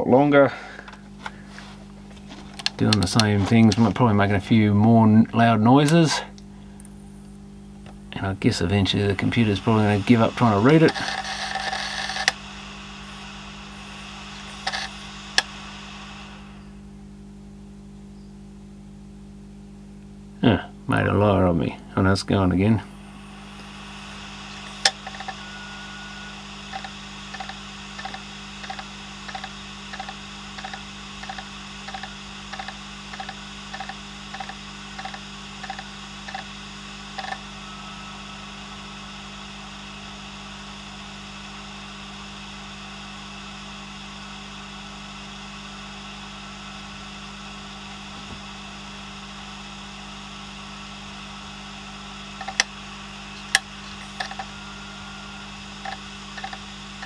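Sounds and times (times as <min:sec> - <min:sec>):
hard drive spinning hum: 0:00.0 - 0:57.0
hard drive head clicks: 0:26.7 - 0:36.5, 0:37.2 - 0:37.4, 0:52.4 - 0:52.7, 0:53.4 - 0:54.5, 0:55.8 - 0:56.6.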